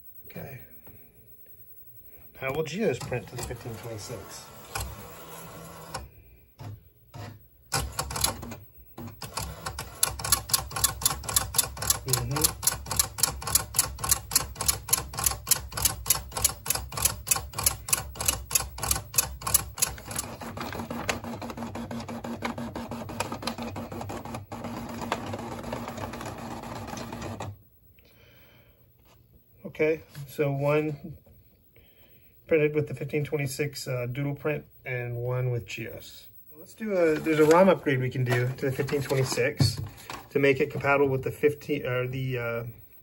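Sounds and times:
dot-matrix printer printing: 0:02.4 - 0:27.6, 0:36.2 - 0:42.9.

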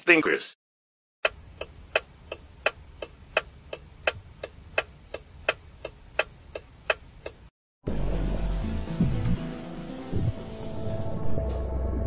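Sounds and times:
clock ticking: 0:01.2 - 0:07.5.

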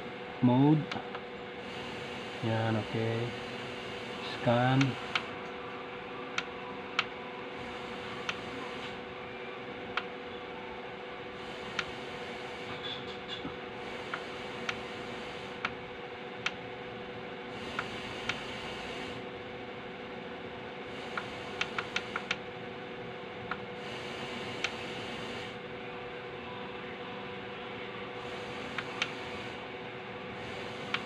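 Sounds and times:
radio static hiss: 0:01.6 - 0:05.4, 0:07.6 - 0:09.0, 0:11.4 - 0:15.6, 0:17.6 - 0:19.2, 0:23.8 - 0:25.6, 0:28.2 - 0:29.6, 0:30.4 - 0:31.0
tuner clicks: 0:21.2 - 0:22.4.

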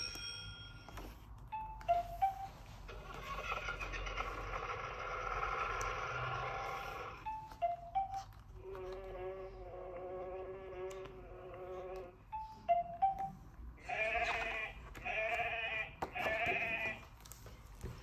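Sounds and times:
sheep bleating: 0:13.8 - 0:17.0.

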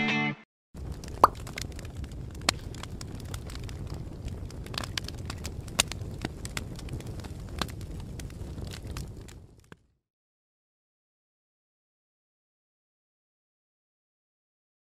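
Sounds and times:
fire crackling: 0:00.8 - 0:10.0.

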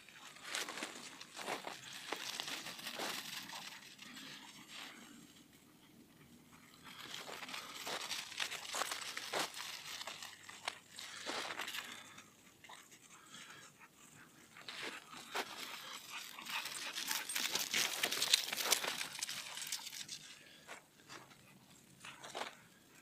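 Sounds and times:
footsteps crunching in snow: 0:00.1 - 0:04.9, 0:06.9 - 0:12.1, 0:14.6 - 0:21.3.

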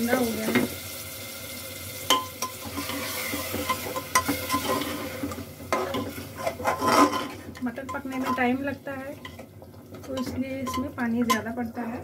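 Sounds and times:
metal spoon scraping a pot: 0:02.4 - 0:08.6, 0:10.2 - 0:11.5.

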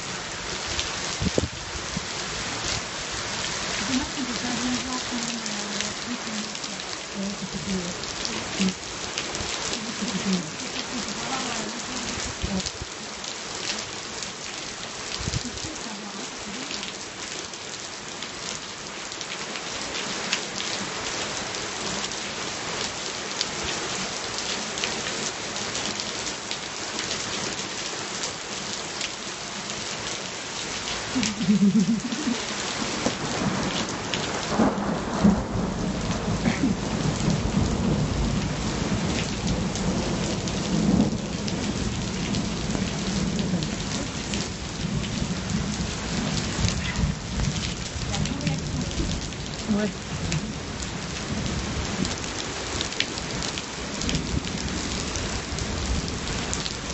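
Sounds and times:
rain falling: 0:00.0 - 0:56.9
thunder rumbling: 0:31.3 - 0:51.7.

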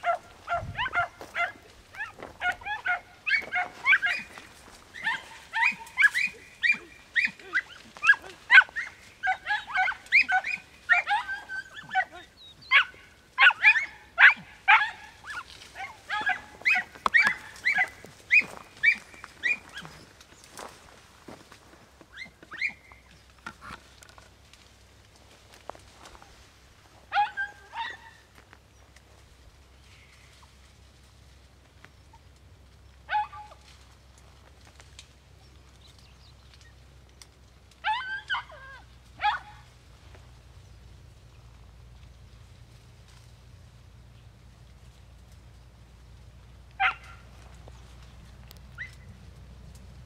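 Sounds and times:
hounds yelping barks: 0:00.0 - 0:20.7, 0:22.1 - 0:23.8, 0:27.0 - 0:28.4, 0:33.0 - 0:33.7, 0:37.8 - 0:39.8, 0:46.7 - 0:48.0, 0:48.7 - 0:49.1.

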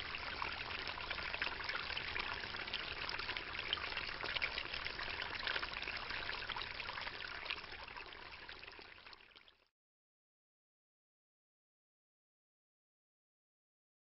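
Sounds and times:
water splashing and trickling: 0:00.0 - 0:09.7.

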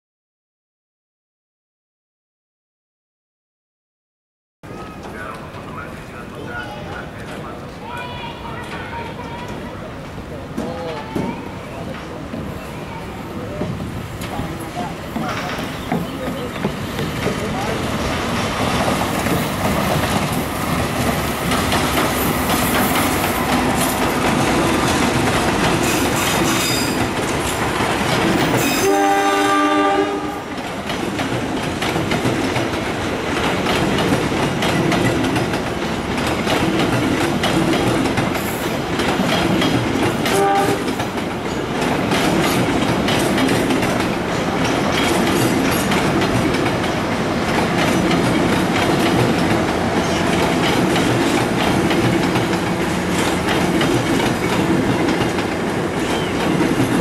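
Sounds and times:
train wheels clattering: 0:13.6 - 0:57.0
train horn: 0:28.6 - 0:30.5, 0:40.3 - 0:41.0.

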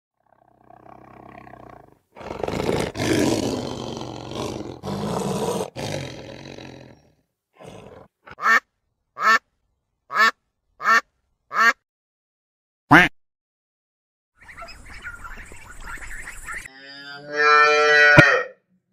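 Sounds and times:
lion roaring: 0:00.2 - 0:08.1
duck quacking: 0:08.3 - 0:08.6, 0:09.2 - 0:09.4, 0:10.1 - 0:11.8, 0:12.9 - 0:13.1.

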